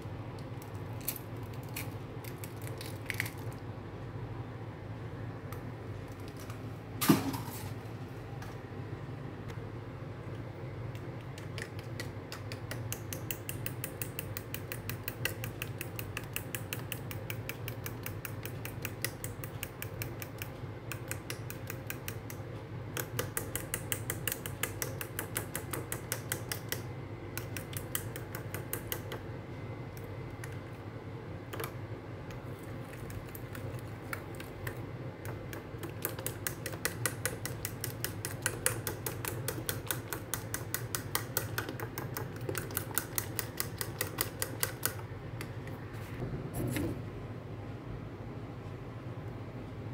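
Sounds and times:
fork clicking against ceramic bowl: 11.4s - 22.4s, 33.0s - 45.0s.

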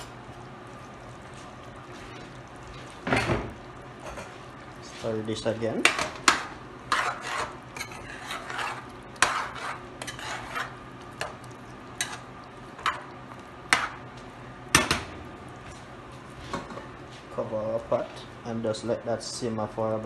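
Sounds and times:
metal spoon scraping a pan: 5.9s - 11.4s, 12.0s - 13.0s.

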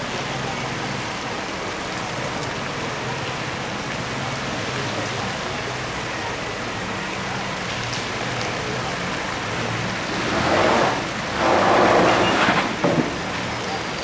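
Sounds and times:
tyres rolling on wet mud: 7.5s - 14.0s.

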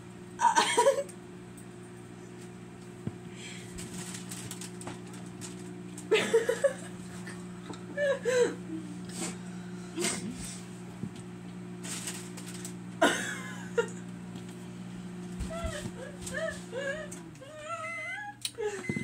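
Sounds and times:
steady low hum: 0.0s - 19.0s
faint crackles and clicks: 3.8s - 6.1s
person vocalizing: 15.5s - 18.6s.

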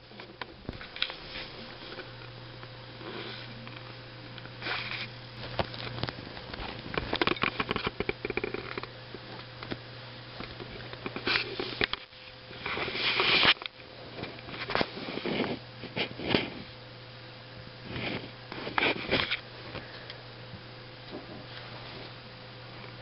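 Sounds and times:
kittens rustling and scratching: 0.0s - 2.3s, 3.0s - 9.5s, 10.4s - 16.8s, 17.8s - 19.9s
steady low hum: 0.0s - 23.0s.

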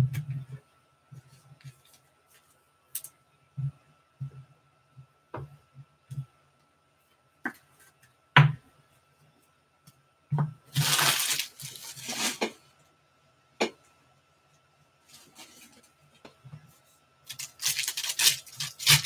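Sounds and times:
crinkly wrapper rustle: 10.7s - 12.5s, 17.3s - 19.0s.

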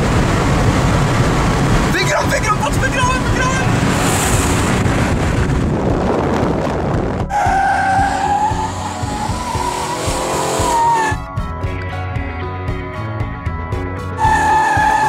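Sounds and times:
wind roar: 0.0s - 11.3s
car engine rumble: 0.0s - 15.0s
music: 6.8s - 15.0s.

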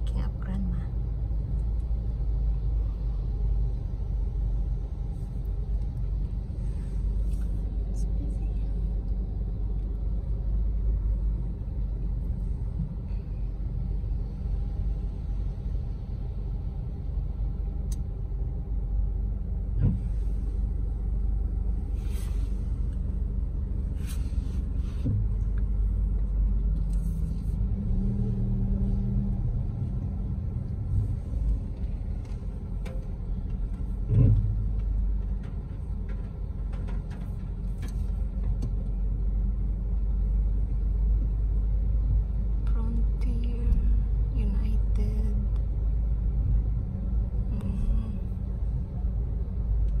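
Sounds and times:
car rumble from inside cabin: 0.0s - 50.0s
car bump: 19.7s - 20.2s, 34.0s - 34.8s.

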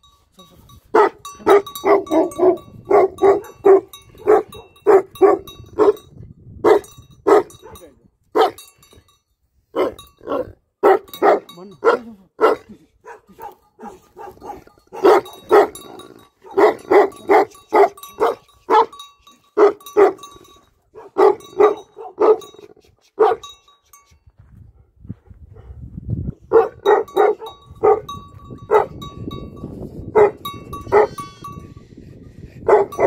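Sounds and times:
dog barking deeply: 0.9s - 6.0s, 6.6s - 7.8s, 8.4s - 8.6s, 9.8s - 19.0s, 19.6s - 20.2s, 20.9s - 22.6s, 23.2s - 23.4s, 26.5s - 28.1s, 28.7s - 29.0s, 30.1s - 31.2s, 32.6s - 33.0s.

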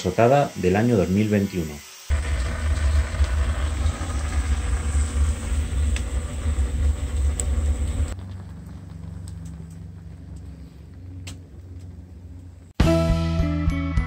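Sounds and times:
fire crackles: 2.1s - 12.7s
wood fire rumbling: 2.1s - 12.7s.

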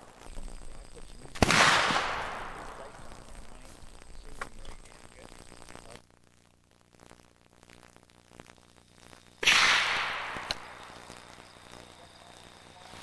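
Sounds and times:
gunshot: 1.3s - 3.0s, 9.4s - 10.9s.

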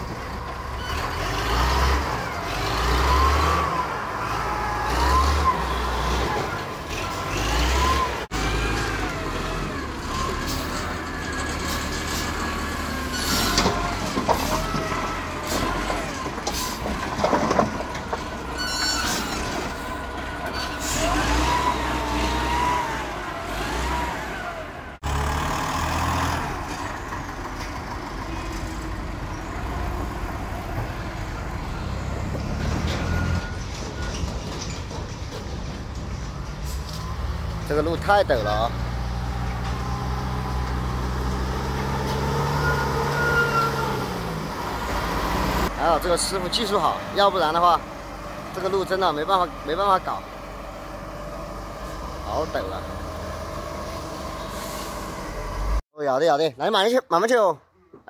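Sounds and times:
diesel engine revving: 0.0s - 34.1s, 36.6s - 55.8s
clattering: 13.2s - 20.8s, 32.8s - 36.6s.

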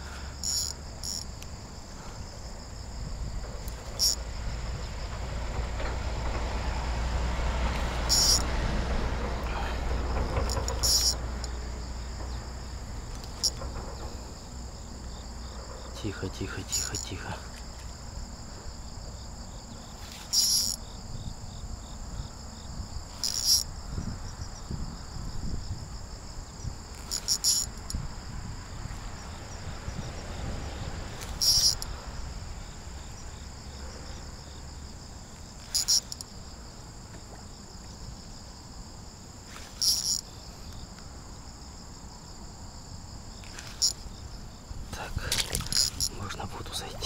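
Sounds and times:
insects chirping chorus: 0.0s - 47.0s.

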